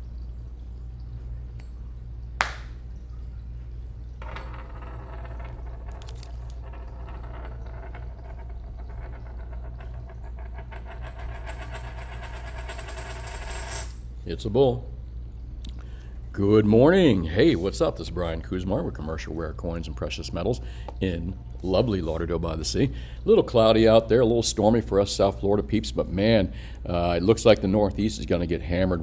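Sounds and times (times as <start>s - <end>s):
coin spinning on hard surface: 4.2s - 14.1s.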